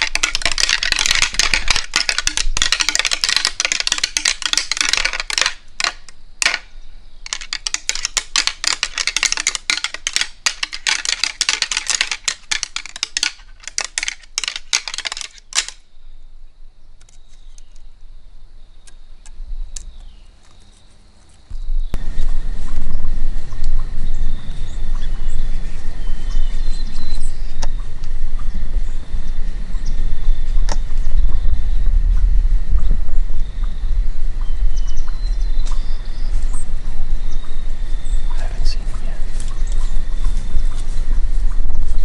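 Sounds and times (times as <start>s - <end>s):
antlers rattling and clacking: 0.0s - 15.8s.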